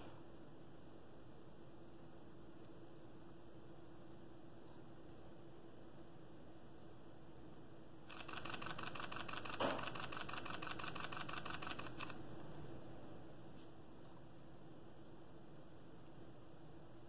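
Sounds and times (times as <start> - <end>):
camera shutter clicking rapidly: 8.1 - 12.2.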